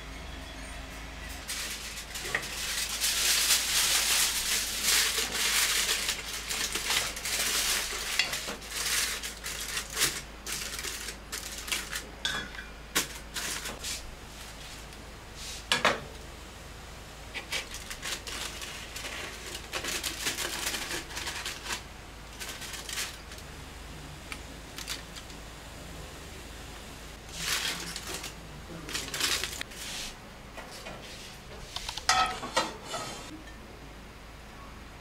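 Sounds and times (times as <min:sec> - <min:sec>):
aluminium foil crinkling: 0:01.4 - 0:12.1, 0:12.9 - 0:13.8, 0:17.3 - 0:23.5, 0:24.3 - 0:25.4, 0:27.2 - 0:30.0
foil clicking against metal rim: 0:01.5 - 0:12.1, 0:17.4 - 0:21.8.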